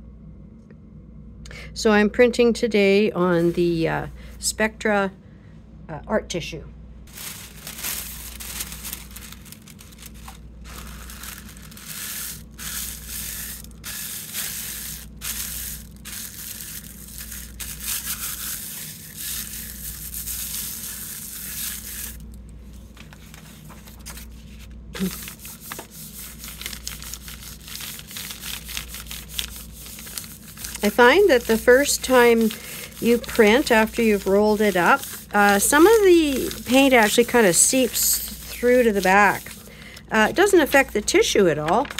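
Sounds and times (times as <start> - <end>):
low steady hum: 0.0 - 41.9
tissue paper rustling: 7.1 - 41.9.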